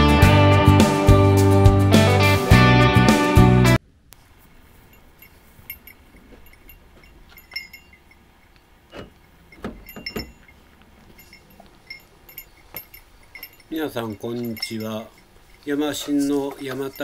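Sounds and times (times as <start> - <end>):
metallic jingling and clinking: 4.4 - 17.0
soft handling thuds: 8.9 - 15.3.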